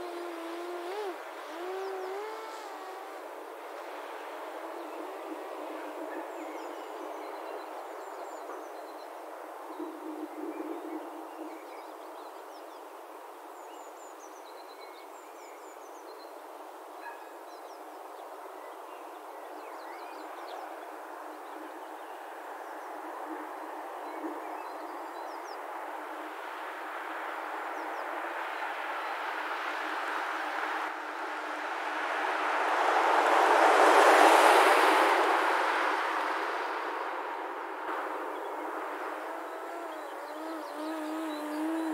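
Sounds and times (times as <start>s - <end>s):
drone propeller whirring buzz: 0.0s - 3.6s, 39.2s - 41.9s.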